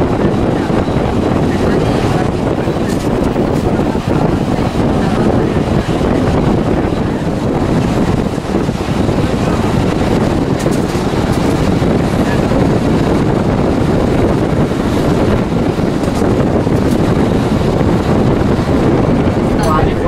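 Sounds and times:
train carriages rumbling on track: 0.0 - 20.0
wind buffeting microphone: 0.0 - 20.0.

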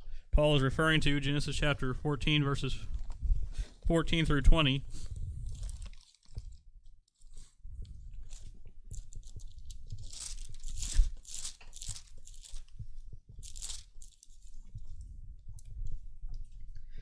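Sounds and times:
pages turning: 4.9 - 7.6, 8.2 - 12.8, 13.4 - 14.6.

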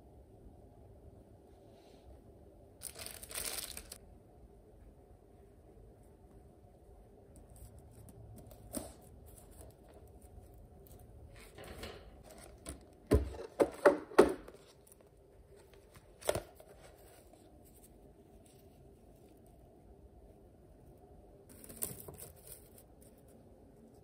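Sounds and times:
faint room hum: 0.0 - 24.0
objects knocking and clattering: 11.4 - 14.7.

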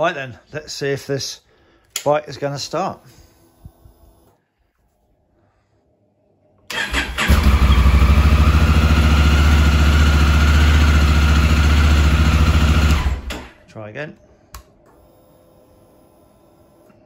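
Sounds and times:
electric starter cranking: 6.7 - 13.6.

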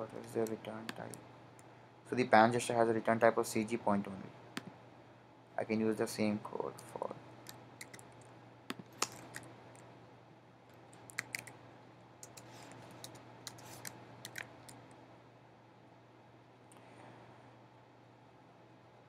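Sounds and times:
faint low hum: 0.0 - 19.0
keyboard and mouse clicks: 7.5 - 9.5, 10.9 - 11.6, 12.2 - 14.8.

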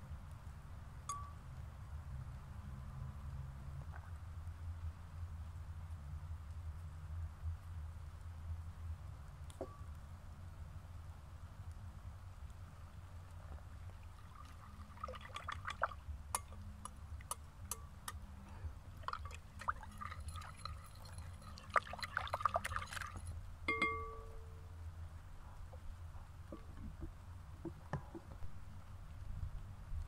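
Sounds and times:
ringing tap on glass bowl: 1.1 - 1.4, 23.7 - 24.6
spoon clinking in glass bowl: 23.7 - 24.4.

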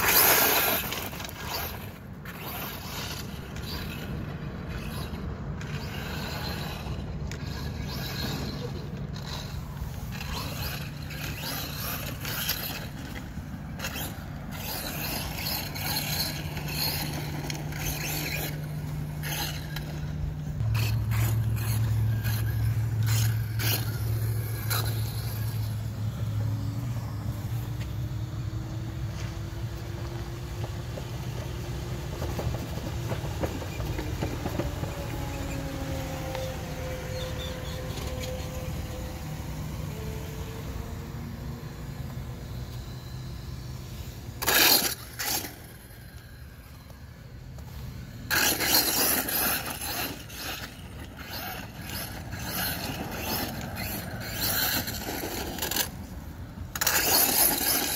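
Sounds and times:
low engine hum: 0.0 - 57.9
rc truck tyres scraping dirt: 0.0 - 57.9.

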